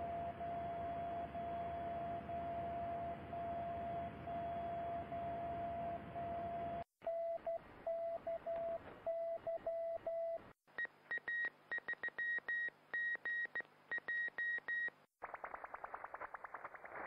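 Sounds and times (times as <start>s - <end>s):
faint hum: 0.0s - 10.4s.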